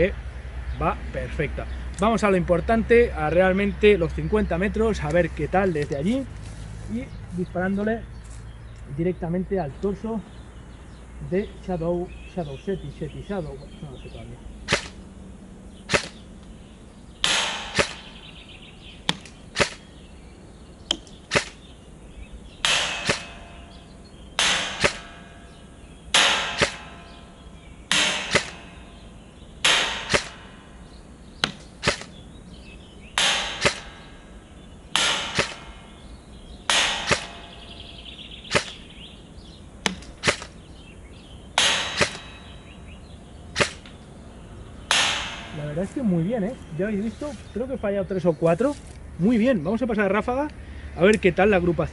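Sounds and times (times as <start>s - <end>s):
airsoft rifle shots: 14.6s - 15.1s, 15.8s - 16.3s, 17.2s - 18.3s, 19.0s - 19.9s, 20.9s - 21.6s, 22.6s - 23.7s, 24.4s - 27.2s, 27.9s - 28.8s, 29.6s - 30.7s, 31.4s - 32.2s, 33.2s - 34.2s, 34.9s - 35.9s, 36.7s - 37.8s, 38.4s - 38.9s, 39.8s - 40.6s, 41.6s - 42.5s, 43.5s - 44.0s, 44.9s - 45.7s.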